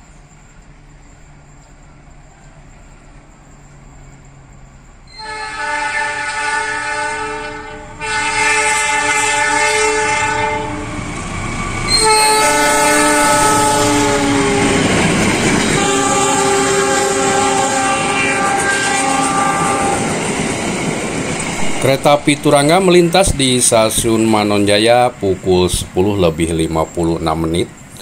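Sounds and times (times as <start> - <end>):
passenger coaches rumbling past: 0.0 - 28.0
locomotive air horn blasts: 5.1 - 11.0, 11.9 - 15.0, 15.6 - 20.2.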